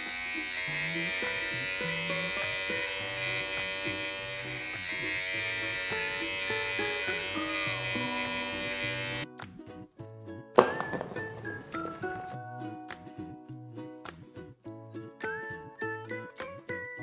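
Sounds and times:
electric clipper buzzing: 0.0 - 9.3
background music: 0.0 - 17.0.

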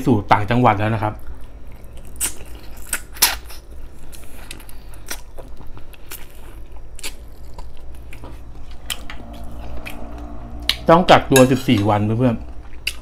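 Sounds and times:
chewing on a rib: 1.2 - 9.4.

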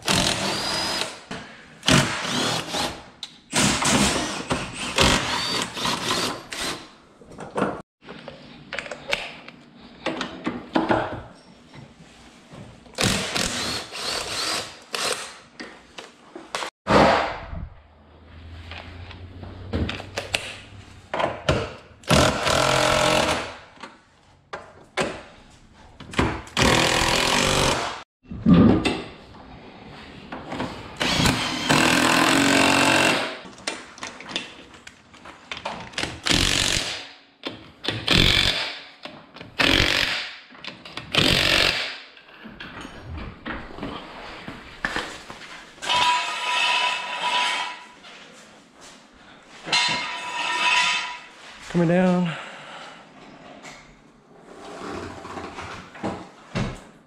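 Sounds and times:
clatter of tools and parts: 45.8 - 47.9.

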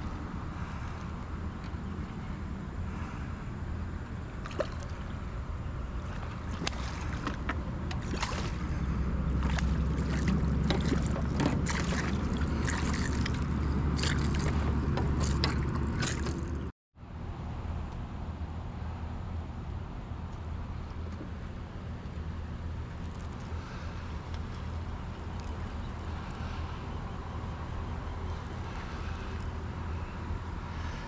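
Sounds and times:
water splashing around kayak: 4.4 - 16.7, 28.3 - 29.6.

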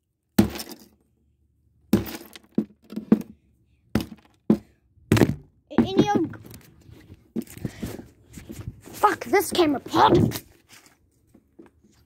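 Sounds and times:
glass crunching: 0.4 - 0.9, 2.0 - 2.6.

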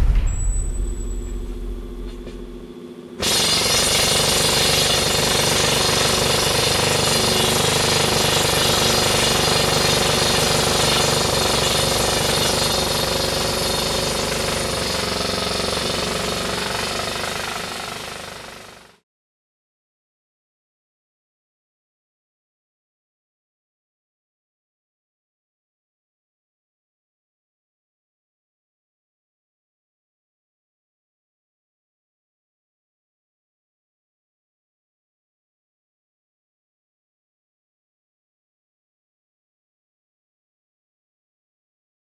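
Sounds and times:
faint low hum: 0.0 - 3.2
loud steady mechanical noise: 0.3 - 19.0.

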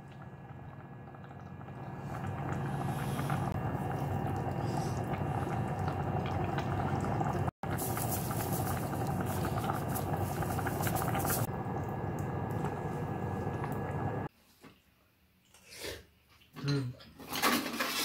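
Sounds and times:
soup boiling and bubbling: 0.0 - 14.3.

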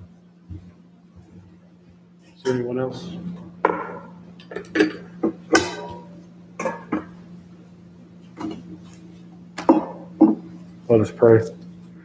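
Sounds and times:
low electrical hum: 0.0 - 12.0
metal and glassware clinking: 3.7 - 7.1.

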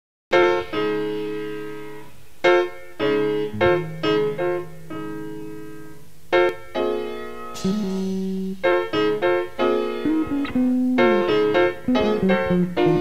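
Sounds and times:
keyboard chords: 3.0 - 13.0.

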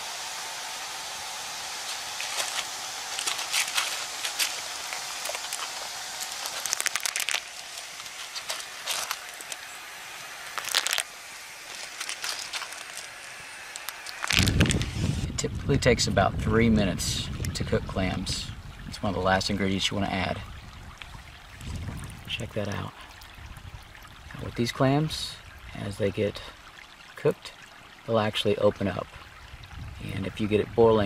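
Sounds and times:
steady hiss: 0.0 - 15.9
clam shells clicking and clattering: 3.2 - 9.6, 10.5 - 11.1, 11.7 - 14.6.

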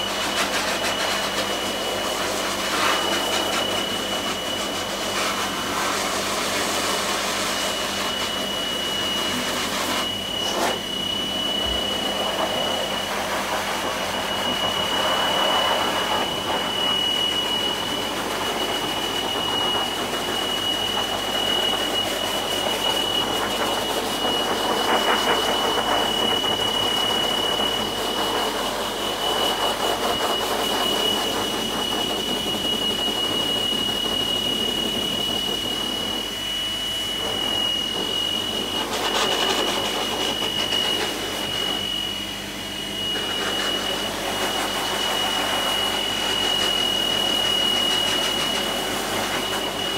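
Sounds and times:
pet dryer air rushing: 0.0 - 49.9.

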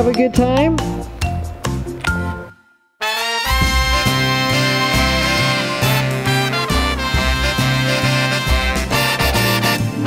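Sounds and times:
upbeat instrumental music: 0.0 - 10.0.

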